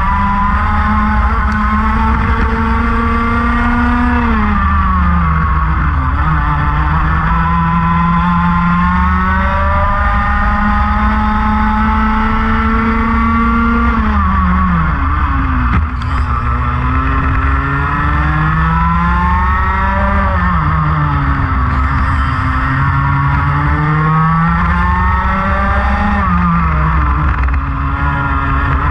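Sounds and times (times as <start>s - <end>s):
race car engine revving: 0.0s - 28.9s.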